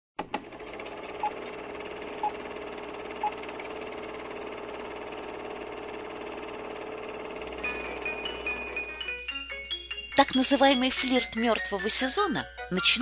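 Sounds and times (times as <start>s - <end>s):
film projector whirring and rattling: 0.2s - 9.0s.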